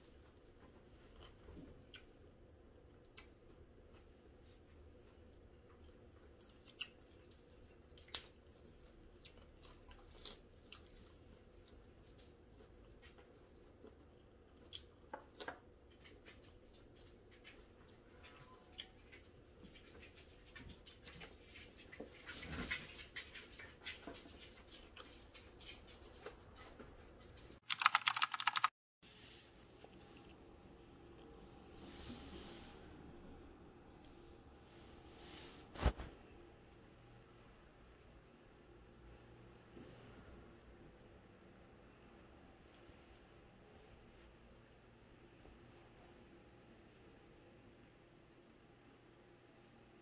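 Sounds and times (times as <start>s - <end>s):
soft chewing: 0.0s - 28.5s
burst of rapid clicking: 27.6s - 28.7s.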